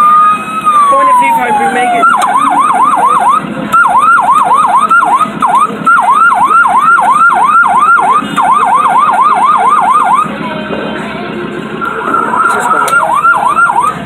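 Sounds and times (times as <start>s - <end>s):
electronic siren whooping: 0.0s - 10.3s, 11.8s - 14.0s.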